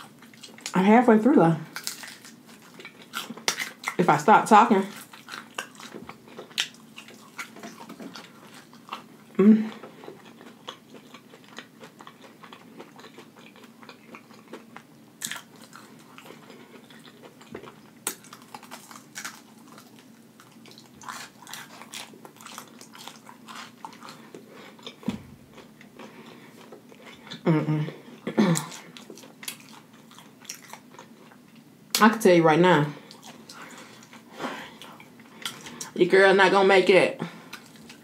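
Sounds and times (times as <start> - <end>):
person chewing crunchy food: 0.0 - 0.8, 1.7 - 4.1, 4.7 - 31.7, 33.0 - 36.0, 37.4 - 38.0.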